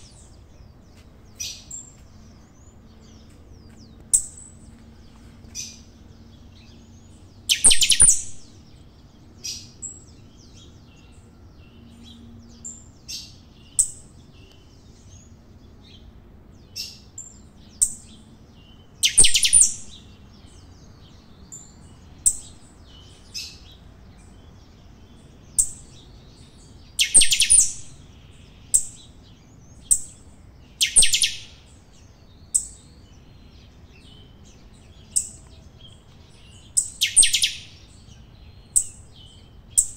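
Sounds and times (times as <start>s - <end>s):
finch chirping: 6.5s - 8.6s, 17.7s - 20.1s, 21.8s - 23.7s, 25.5s - 39.9s.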